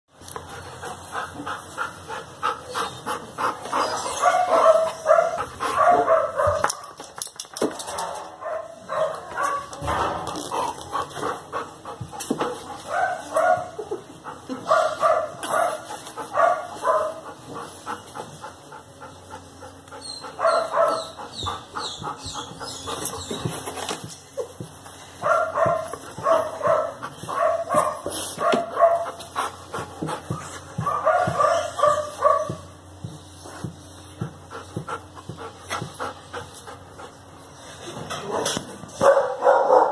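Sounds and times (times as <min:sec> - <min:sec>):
dog barking: 0:04.2 - 0:06.8, 0:08.0 - 0:09.8, 0:12.9 - 0:13.8, 0:14.6 - 0:15.8, 0:16.4 - 0:17.2, 0:20.4 - 0:21.1, 0:25.2 - 0:29.2, 0:30.8 - 0:32.6, 0:39.0 - 0:39.9.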